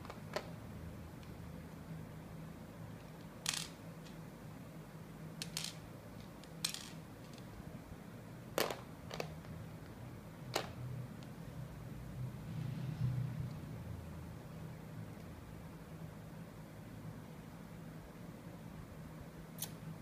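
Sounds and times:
plastic puzzle pieces clicking: 3.5s - 3.8s, 5.4s - 5.8s, 6.4s - 7.4s.

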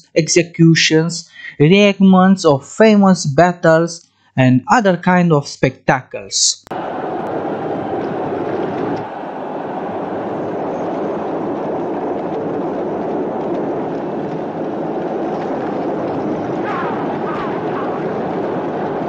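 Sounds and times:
chariot wheels on track: 6.7s - 19.0s
galloping horses: 6.8s - 19.0s.

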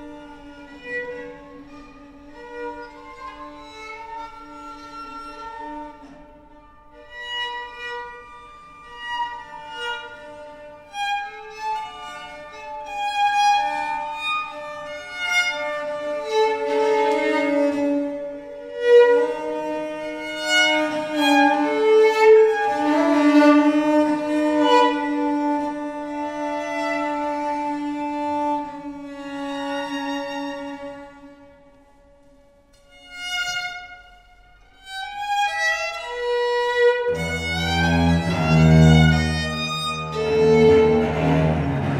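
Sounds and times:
bowed violin melody: 0.0s - 41.9s
viola da gamba low note: 37.1s - 41.9s.

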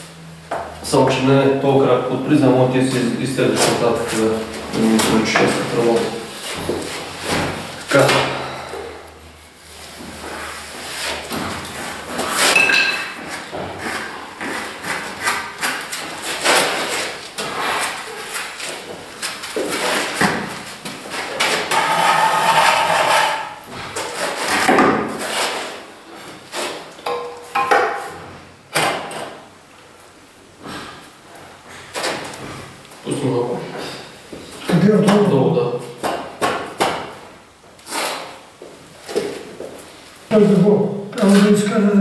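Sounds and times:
tools knocking and scraping on wall: 2.9s - 8.4s, 11.2s - 29.4s.

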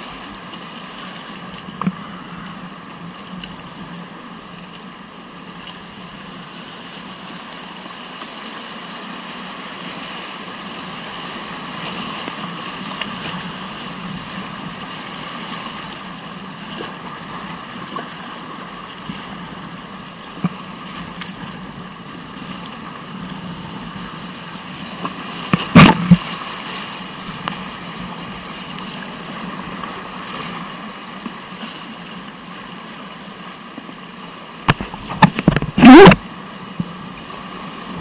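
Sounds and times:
whitewater river rushing: 6.0s - 19.0s, 22.0s - 36.4s.

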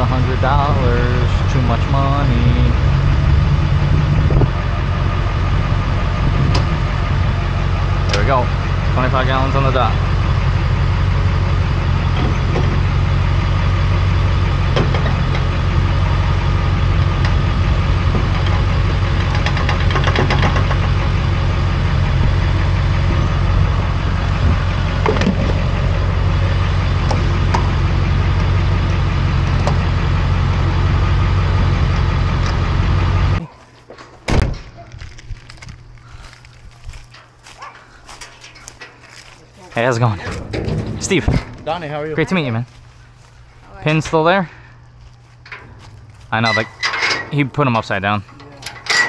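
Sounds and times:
vehicle engine humming: 0.0s - 49.0s.

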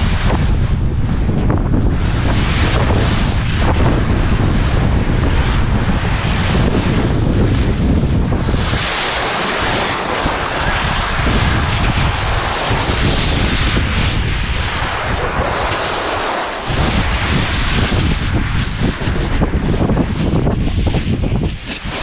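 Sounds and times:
wind buffeting microphone: 0.0s - 22.0s
skis sliding on snow: 8.6s - 22.0s.

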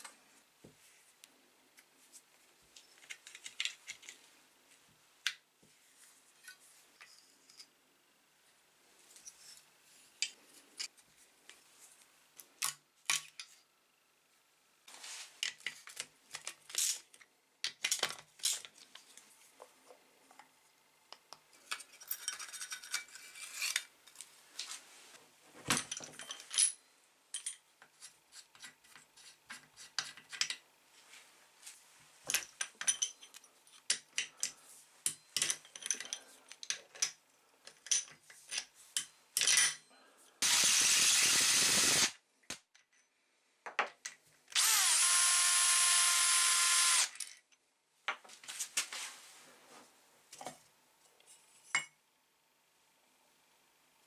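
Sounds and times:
metal parts rattling: 21.6s - 23.9s
tools and metal parts clinking: 21.6s - 24.2s, 25.7s - 27.7s, 32.3s - 39.9s.

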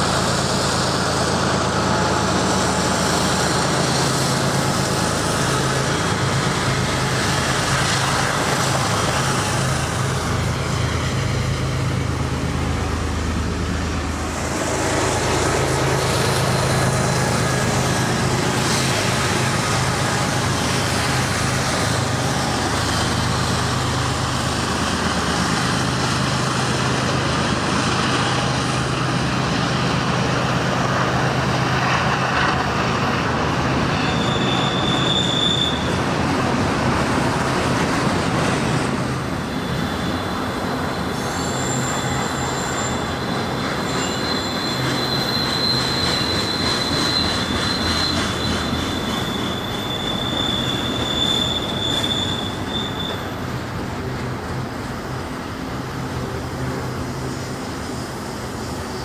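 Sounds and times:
train wheels rumbling on rails: 0.0s - 59.0s
high wheel squeals: 31.8s - 36.2s, 39.3s - 53.9s.

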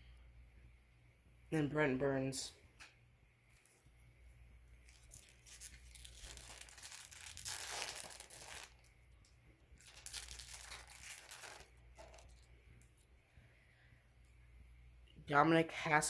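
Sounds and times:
foil wrapper tearing and crinkling: 4.8s - 8.9s, 9.8s - 12.5s.

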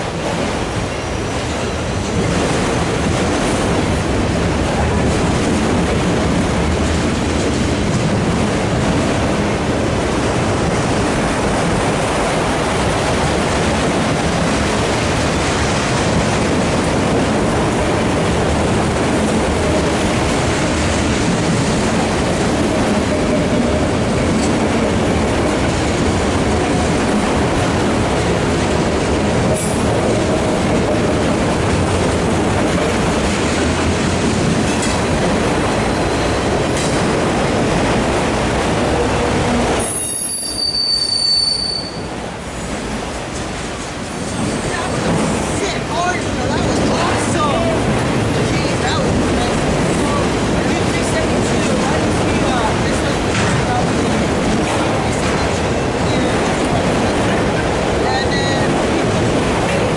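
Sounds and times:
freight cars rumbling on rails: 0.0s - 59.9s.

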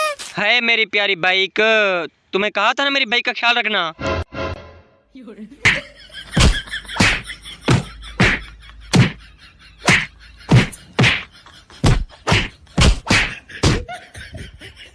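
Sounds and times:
hands slapping a back: 5.6s - 5.8s, 6.4s - 9.2s, 9.8s - 13.9s.

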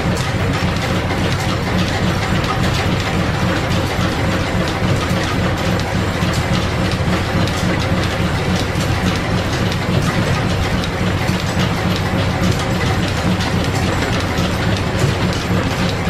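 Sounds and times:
line shafting and belts clattering: 0.0s - 16.0s.

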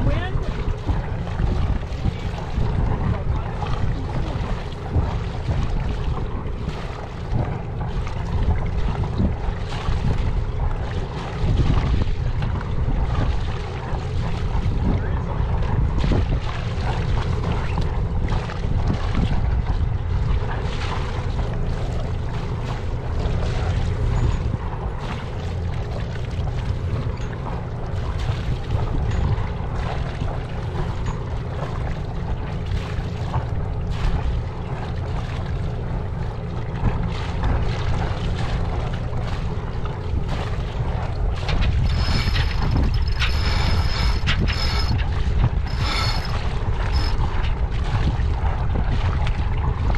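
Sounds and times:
wind buffeting microphone: 0.0s - 49.9s
knocks and flaps: 40.5s - 48.2s.

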